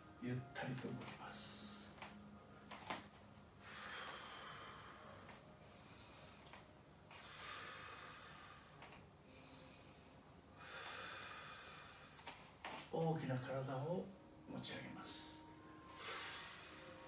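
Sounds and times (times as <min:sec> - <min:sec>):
person breathing slowly: 0:03.6 - 0:12.4, 0:15.8 - 0:17.0.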